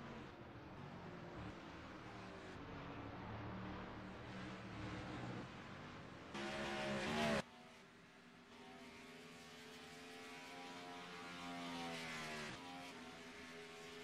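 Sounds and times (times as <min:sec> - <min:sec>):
race car engine droning: 0:06.3 - 0:07.4.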